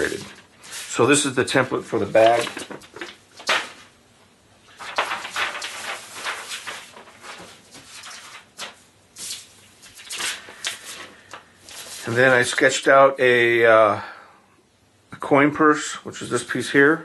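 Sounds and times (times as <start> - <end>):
paper rustling: 0.0 - 3.9, 4.6 - 12.6.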